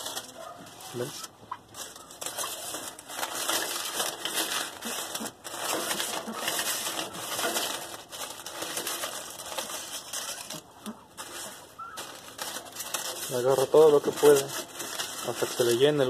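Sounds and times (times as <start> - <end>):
dry leaves rustling and crackling: 0.0 - 16.0.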